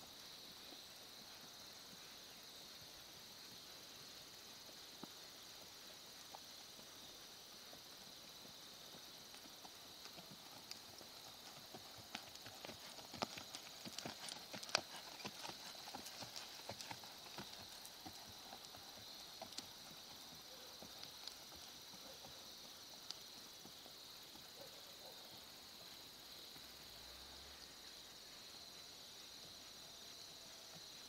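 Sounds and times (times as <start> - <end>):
hoofbeats on sand: 7.8 - 22.1.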